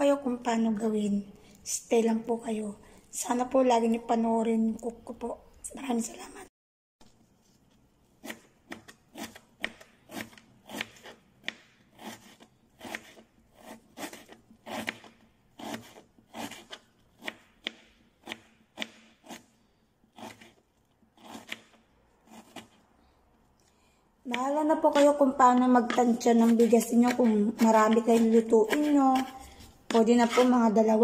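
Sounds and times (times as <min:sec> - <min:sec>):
knife chopping on cutting board: 0:08.2 - 0:19.5, 0:20.2 - 0:20.6, 0:21.2 - 0:22.8, 0:24.3 - 0:30.7.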